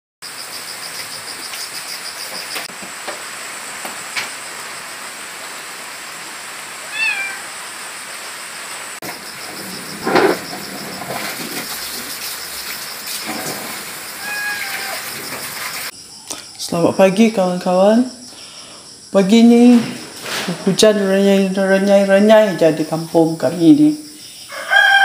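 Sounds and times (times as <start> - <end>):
light drizzle hissing: 2.7 - 16.7
cats meowing: 6.9 - 7.6, 14.2 - 15.2.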